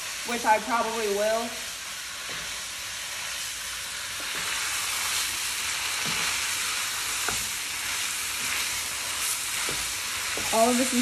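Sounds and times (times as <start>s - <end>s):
food sizzling in a wok: 0.0s - 11.0s
utensils knocking on pan: 9.6s - 10.9s.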